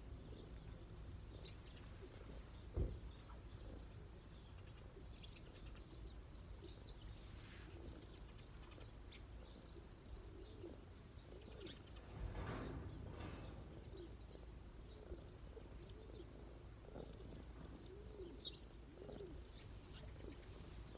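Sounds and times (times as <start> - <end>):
small birds chirping: 0.0 - 20.9
pigeon cooing: 7.7 - 12.0, 14.9 - 20.9.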